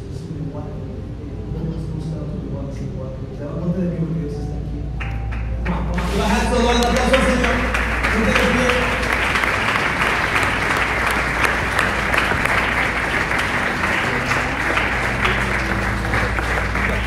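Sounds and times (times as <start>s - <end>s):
held low music notes: 0.0s - 17.0s
congregation applauding: 5.0s - 17.0s.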